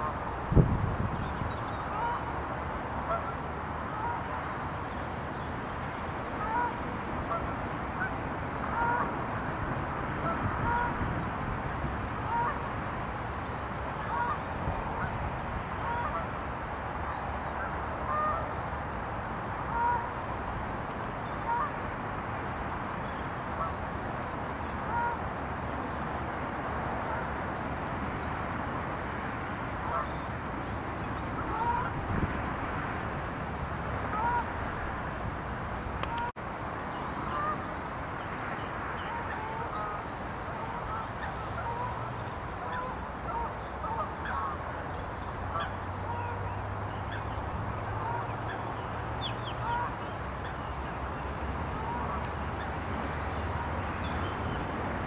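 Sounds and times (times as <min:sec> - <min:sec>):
steady background noise: 0:00.0 - 0:55.0
waterfowl calling: 0:01.8 - 0:02.2, 0:03.1 - 0:04.3, 0:06.4 - 0:08.1, 0:08.7 - 0:09.1, 0:10.2 - 0:11.0, 0:12.3 - 0:12.6, 0:14.0 - 0:15.2, 0:15.8 - 0:16.3, 0:17.6 - 0:18.5, 0:19.7 - 0:20.1, 0:21.4 - 0:21.7, 0:24.9 - 0:25.2, 0:29.8 - 0:30.2, 0:31.4 - 0:32.0, 0:34.1 - 0:34.5, 0:37.2 - 0:37.6, 0:39.0 - 0:44.6, 0:45.5 - 0:46.4, 0:47.9 - 0:50.7.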